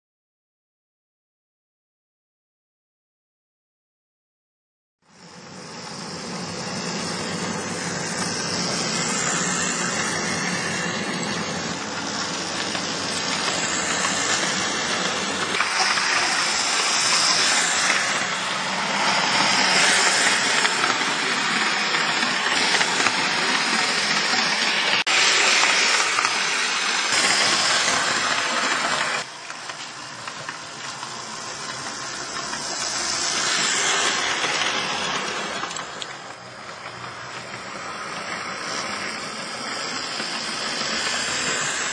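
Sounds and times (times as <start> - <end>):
model train motor whirring: 5.2 - 41.9
model tram passing: 5.2 - 41.9.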